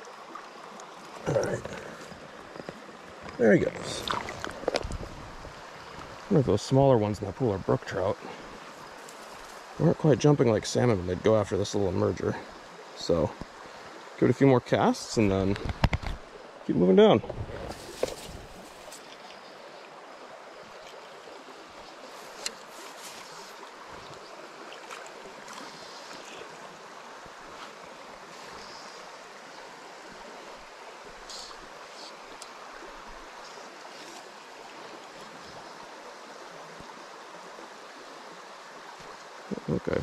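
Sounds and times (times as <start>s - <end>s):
stream water rushing: 0.0s - 40.0s
faint ticks: 21.8s - 24.2s, 31.3s - 32.6s.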